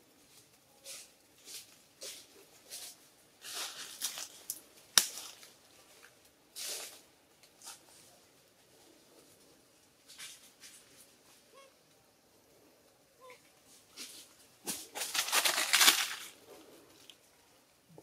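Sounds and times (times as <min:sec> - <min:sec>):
dry leaves crackling: 0:00.3 - 0:07.0, 0:13.7 - 0:17.2.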